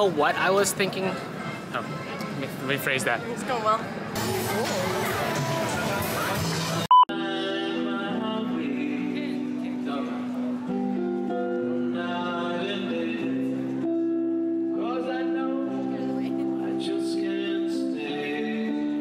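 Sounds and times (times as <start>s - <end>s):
man singing into a microphone: 7.1s - 10.7s, 11.6s - 13.8s, 14.6s - 19.0s
electric guitar chords: 7.1s - 19.0s.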